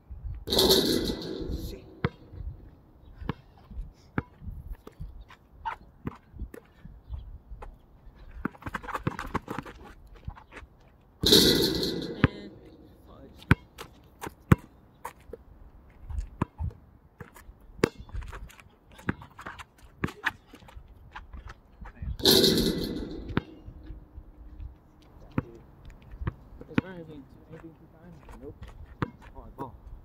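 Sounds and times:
basketball bouncing on asphalt: 0:00.5 - 0:10.5, 0:13.4 - 0:15.4, 0:16.2 - 0:21.6, 0:22.3 - 0:27.0, 0:28.6 - 0:29.4.

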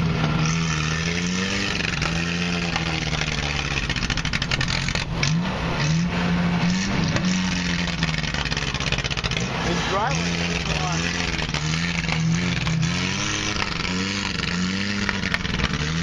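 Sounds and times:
truck engine revving: 0:00.0 - 0:16.0.

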